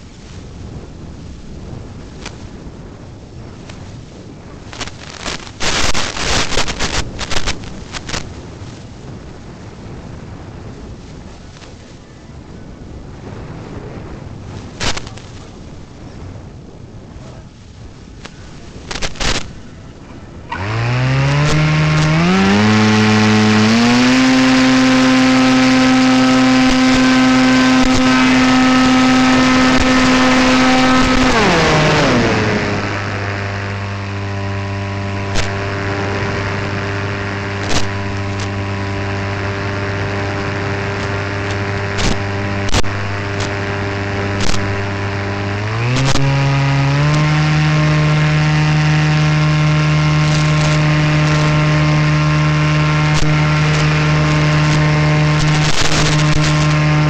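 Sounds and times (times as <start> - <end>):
propeller motor running: 18.6 - 57.0.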